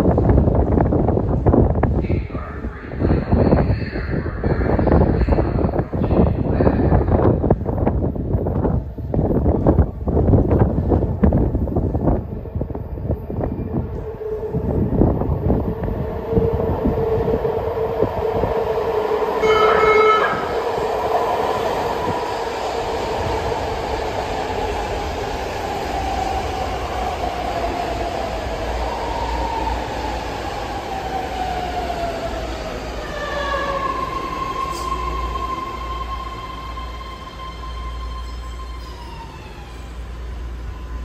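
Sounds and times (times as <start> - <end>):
train propulsion whine: 10.3 - 41.0
steady high tone: 16.9 - 21.6
train horn blast: 19.4 - 20.6.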